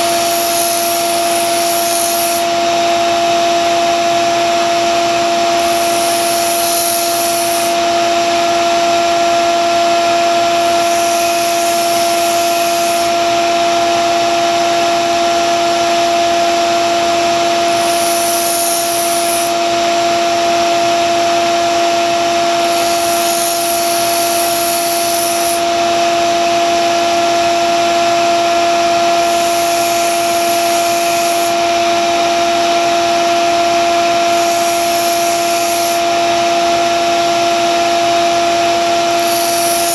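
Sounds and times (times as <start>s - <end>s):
blade grinding on belt: 0.0s - 2.6s, 5.5s - 7.8s, 10.5s - 13.2s, 17.6s - 19.6s, 22.5s - 25.8s, 29.1s - 31.6s, 34.2s - 36.1s, 39.0s - 39.9s
belt sander motor hum: 0.0s - 3.8s, 5.1s - 8.7s, 10.1s - 14.2s, 17.3s - 21.1s, 22.0s - 27.1s, 27.9s - 37.1s, 38.8s - 39.9s.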